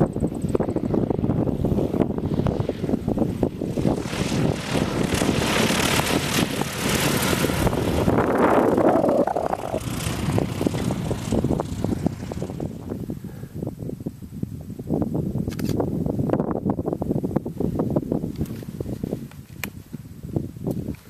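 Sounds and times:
propeller plane engine: 0.0 - 14.1
wind buffeting microphone: 0.0 - 21.0.

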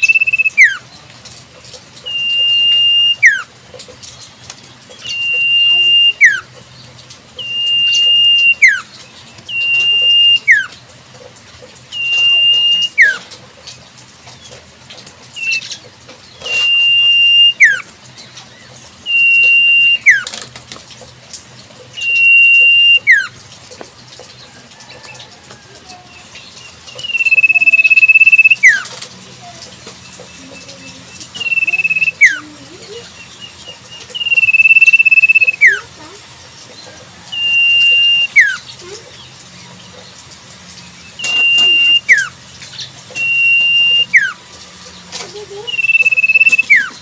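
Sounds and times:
bird whistling call: 0.0 - 0.8, 2.0 - 3.5, 4.9 - 6.5, 7.4 - 8.9, 9.5 - 10.8, 11.9 - 13.3, 15.4 - 15.8, 16.4 - 17.9, 19.0 - 20.3, 21.9 - 23.3, 26.9 - 28.9, 30.4 - 32.5, 34.0 - 35.9, 37.2 - 38.6, 41.1 - 42.4, 43.1 - 44.4, 45.6 - 47.0.

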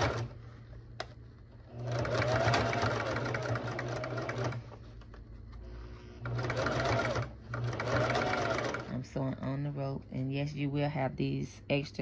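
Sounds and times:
electric sewing machine stitching: 0.0 - 0.4, 1.7 - 4.8, 5.7 - 9.1.

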